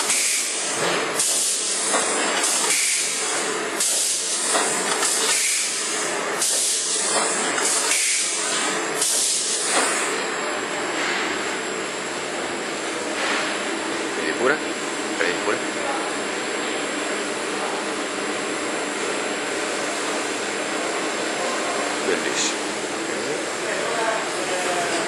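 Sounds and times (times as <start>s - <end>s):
packing machine running: 0.0s - 10.9s
sharp hiss of air: 2.4s - 3.2s.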